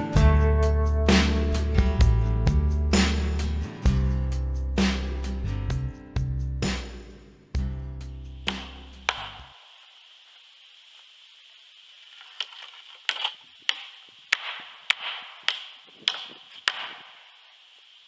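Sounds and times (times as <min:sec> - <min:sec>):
background music: 0:00.0 - 0:07.0
hammer striking nails into wood: 0:08.5 - 0:09.4, 0:13.1 - 0:17.1.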